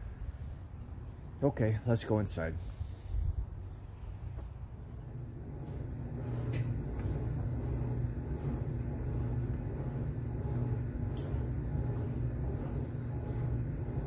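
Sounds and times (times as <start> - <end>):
washing machine running: 4.8 - 14.0.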